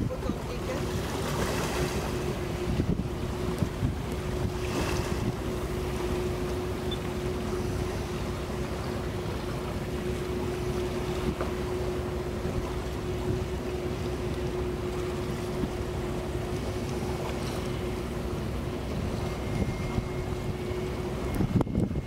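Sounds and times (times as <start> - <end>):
boat engine running: 0.0 - 22.0
wind noise on microphone: 2.5 - 5.5, 19.4 - 22.0.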